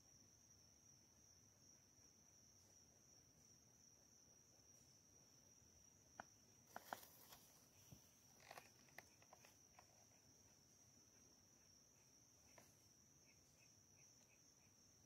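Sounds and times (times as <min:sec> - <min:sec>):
faint clicks and rustles: 0:06.6 - 0:10.5.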